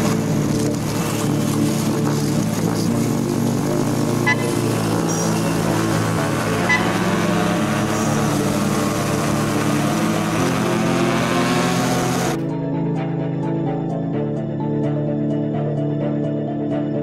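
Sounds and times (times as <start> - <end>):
motorcycles running in tunnel: 0.0 - 15.2
music: 0.0 - 17.0
motorcycle horn beep: 4.2 - 5.5, 6.6 - 7.2.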